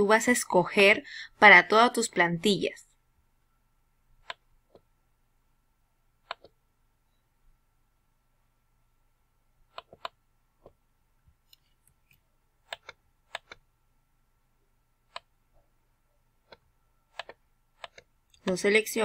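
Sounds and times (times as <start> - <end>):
computer mouse clicks: 4.2 - 4.9, 6.2 - 6.6, 9.7 - 10.8, 11.4 - 13.6, 15.1 - 15.3, 16.4 - 18.6.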